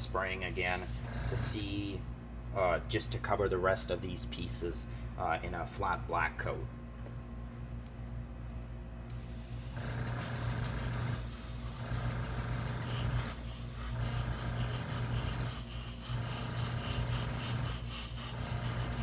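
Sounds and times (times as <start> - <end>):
steady low hum: 0.0 - 19.0
airbrush air hiss: 0.4 - 1.6, 9.1 - 19.0.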